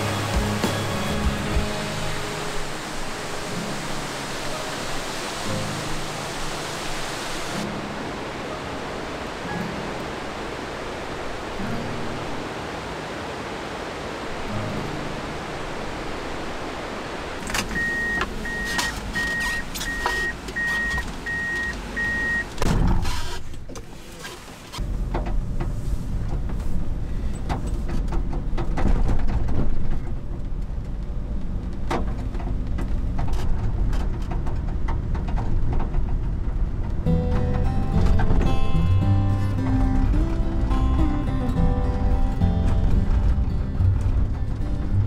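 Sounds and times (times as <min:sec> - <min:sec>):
truck engine running: 0:00.0 - 0:03.3
rushing water hiss: 0:00.0 - 0:22.0
road noise: 0:00.0 - 0:45.0
short beeps: 0:17.7 - 0:22.5.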